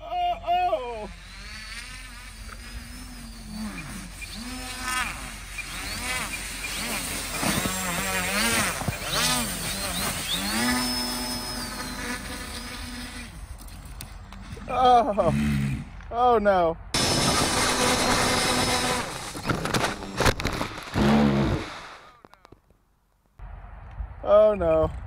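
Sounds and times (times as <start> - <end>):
electric motors with propellers buzzing: 0.9 - 16.0, 17.0 - 22.2.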